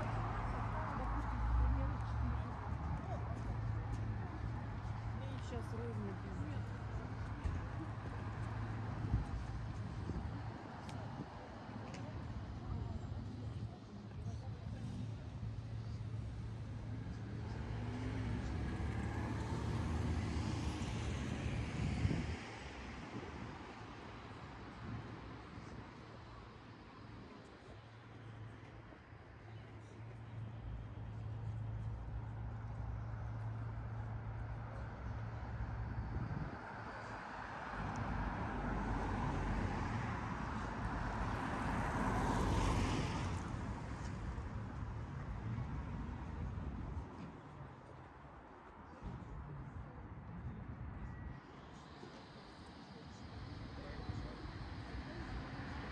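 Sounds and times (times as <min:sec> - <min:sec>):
cars driving past: 0:00.0 - 0:55.9
road traffic: 0:00.0 - 0:55.9
vehicle passing: 0:14.8 - 0:23.5, 0:30.9 - 0:47.1.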